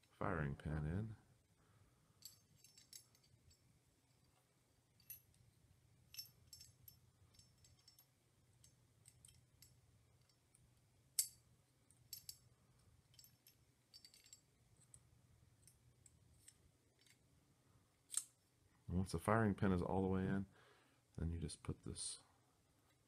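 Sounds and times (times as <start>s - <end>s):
metal parts clicking and clinking: 2.2s - 15.0s, 15.6s - 17.2s, 18.0s - 18.4s.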